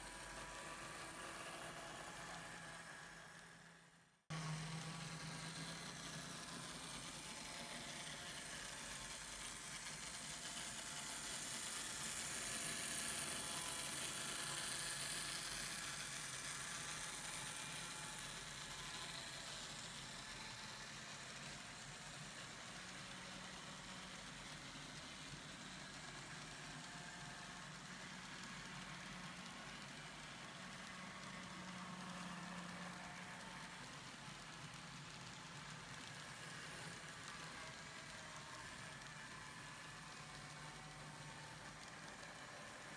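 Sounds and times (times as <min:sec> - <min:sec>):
model train motors whirring: 0:00.0 - 0:42.9
wheels rolling on track: 0:20.8 - 0:42.9.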